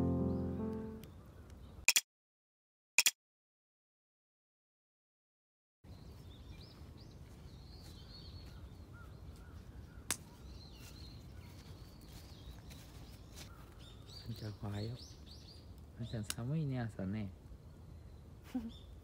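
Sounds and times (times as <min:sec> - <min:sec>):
birds chirping: 0:00.0 - 0:01.8, 0:05.9 - 0:19.0
sharp click: 0:01.9 - 0:02.1.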